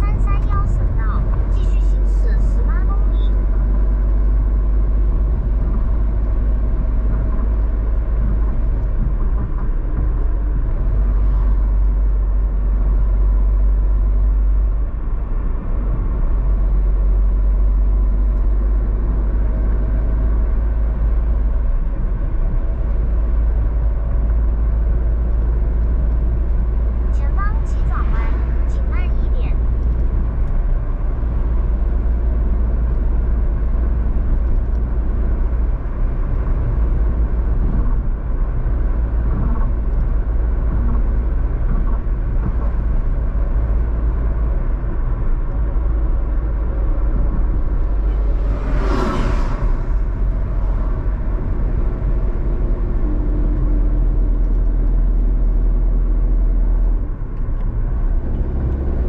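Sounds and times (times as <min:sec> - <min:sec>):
car engine and tyre rumble: 0:00.0 - 0:59.0
whoosh: 0:47.6 - 0:51.6.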